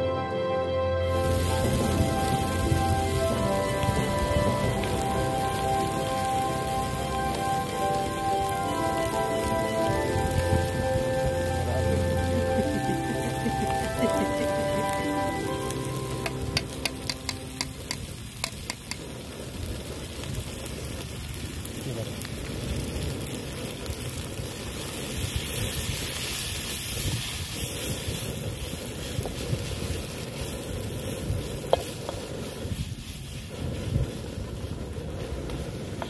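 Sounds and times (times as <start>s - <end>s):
noodles sizzling in a wok: 1.1s - 36.0s
wooden spatula scraping wok: 27.2s - 36.0s.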